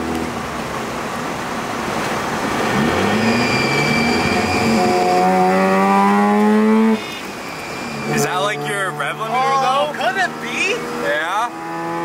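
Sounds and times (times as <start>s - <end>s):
rotary engine revving: 2.4s - 12.0s
thin high tone: 6.8s - 10.8s.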